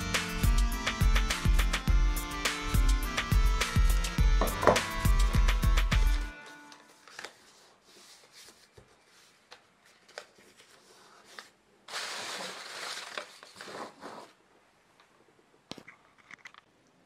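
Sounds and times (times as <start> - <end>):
paper rustling: 6.4 - 14.4.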